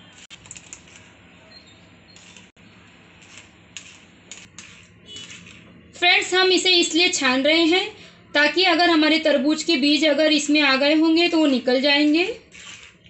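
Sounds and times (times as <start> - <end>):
spoon scraping metal strainer: 3.2 - 5.6.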